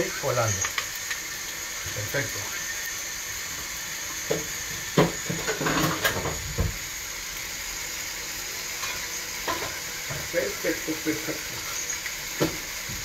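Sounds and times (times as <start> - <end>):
pan sizzling on gas hob: 0.0 - 13.0
cookware knocks and clatters: 5.0 - 6.7, 8.8 - 10.3.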